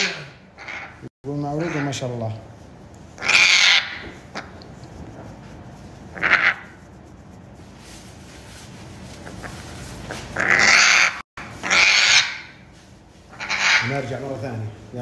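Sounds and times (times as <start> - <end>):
parrot giving harsh raspy calls: 0.0 - 2.2, 3.2 - 4.6, 6.1 - 6.8, 10.1 - 12.7, 13.3 - 14.2.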